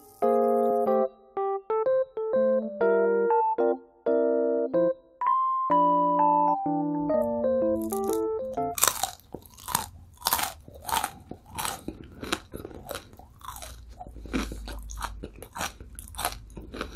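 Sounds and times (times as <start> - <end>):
electric piano melody: 0.0 - 9.3
crunchy chewing: 7.8 - 16.9.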